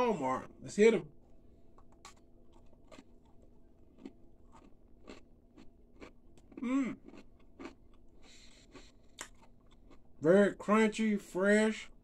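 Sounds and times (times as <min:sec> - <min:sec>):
cookie crunching: 0:01.7 - 0:10.7.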